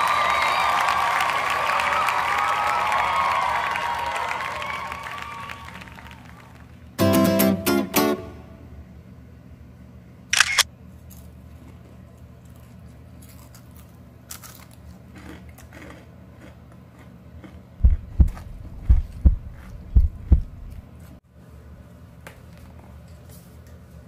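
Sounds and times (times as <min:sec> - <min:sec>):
sharp click-like burst: 0:10.4 - 0:10.7
heartbeat thumps: 0:17.8 - 0:20.8.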